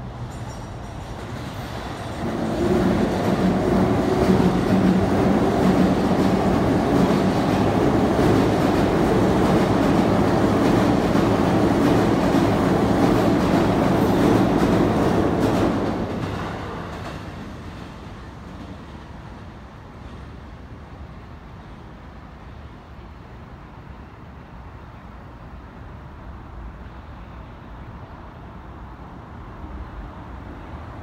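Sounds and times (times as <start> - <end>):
train wheels rumbling on rail: 0.0 - 23.3.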